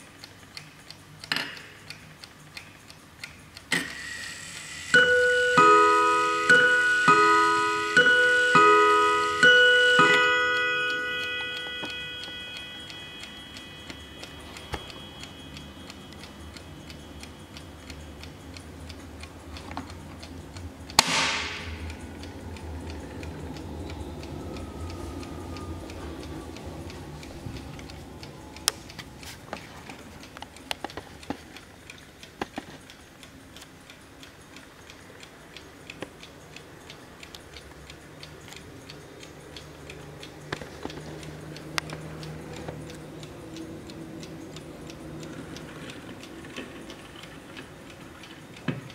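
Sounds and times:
clock ticking: 0.0s - 48.9s
clock chime rods ringing: 4.8s - 19.4s, 21.0s - 30.4s
sharp knock: 21.0s - 21.8s.

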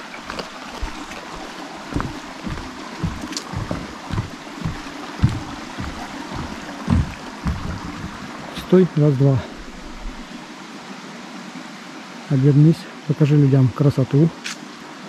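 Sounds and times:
footsteps on forest trail: 0.0s - 8.7s, 9.4s - 10.5s
stream running: 0.0s - 15.0s.

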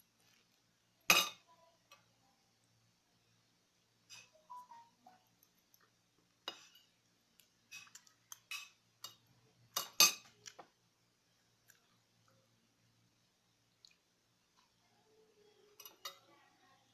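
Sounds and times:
cutlery clinking on a plate: 1.1s - 2.0s, 7.7s - 10.4s.

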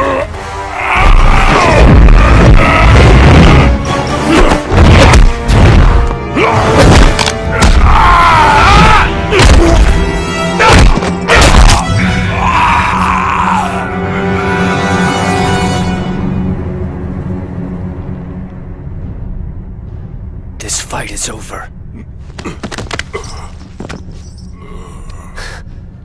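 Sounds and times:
dramatic film score: 0.0s - 26.0s
punch and kick impacts: 4.4s - 6.0s, 6.7s - 7.9s, 8.8s - 10.0s, 10.6s - 11.9s.

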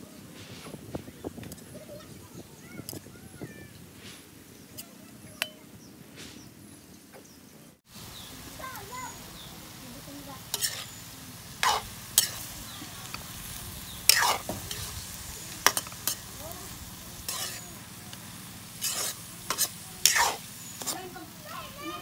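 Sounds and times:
food sizzling: 7.8s - 22.0s
metal spatula scraping a wok: 10.4s - 21.1s.

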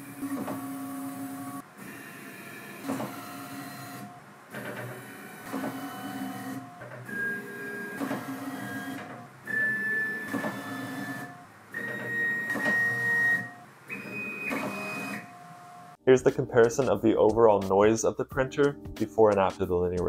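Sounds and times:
stepper motors whining: 0.0s - 16.0s.

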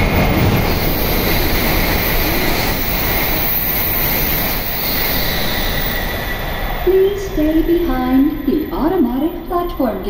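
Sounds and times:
high-speed train passing: 0.0s - 10.0s.

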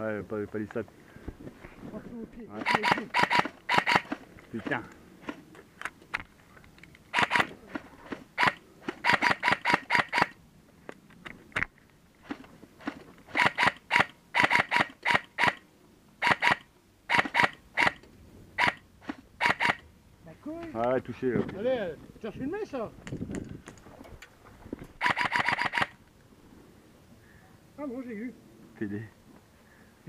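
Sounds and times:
airsoft rifle shots: 2.6s - 5.4s, 7.1s - 10.4s, 12.8s - 15.6s, 16.2s - 18.0s, 18.6s - 19.8s, 25.0s - 26.0s.

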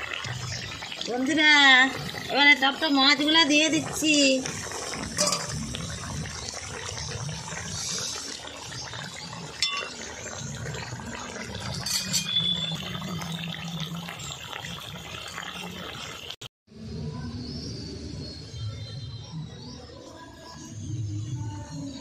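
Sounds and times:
curry simmering and bubbling: 0.0s - 16.4s.

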